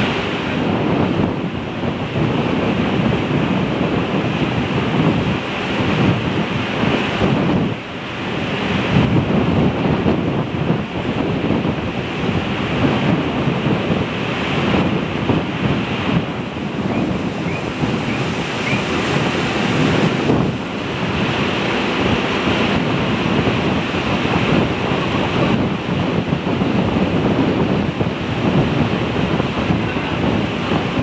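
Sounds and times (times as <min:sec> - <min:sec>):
wind on microphone: 0:00.0 - 0:31.0.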